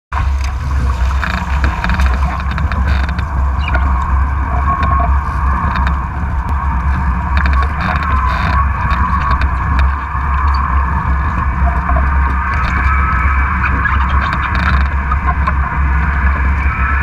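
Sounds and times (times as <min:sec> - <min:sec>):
wind buffeting microphone: 0:00.1 - 0:17.0
water rushing past: 0:00.2 - 0:08.1
faint steady whine: 0:00.2 - 0:17.0.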